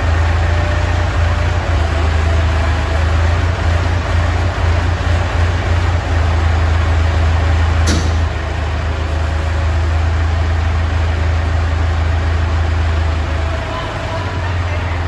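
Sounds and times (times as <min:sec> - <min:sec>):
tractor engine running: 0:00.0 - 0:15.0
sharp click: 0:07.8 - 0:08.3.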